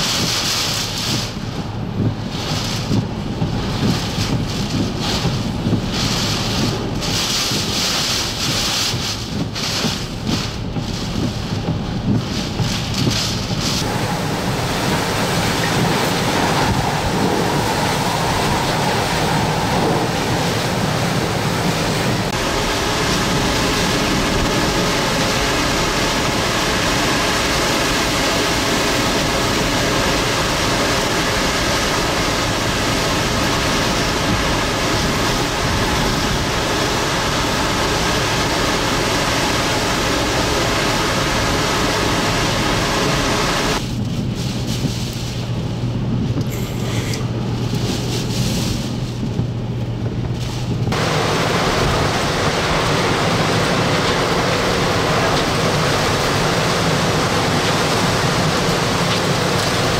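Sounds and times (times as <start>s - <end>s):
hurricane wind and rain: 0.0s - 59.9s.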